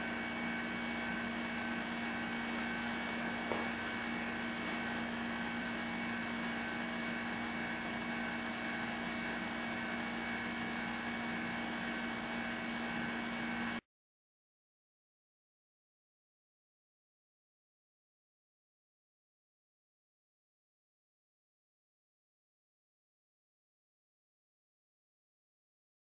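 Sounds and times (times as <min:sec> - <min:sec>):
electrical hum: 0:00.0 - 0:13.8.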